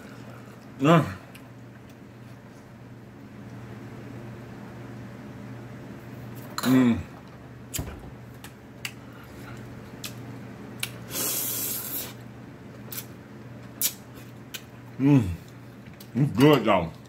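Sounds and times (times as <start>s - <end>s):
wet chewing and mouth smacks: 8.8s - 10.2s
loud noodle slurp: 11.1s - 12.2s.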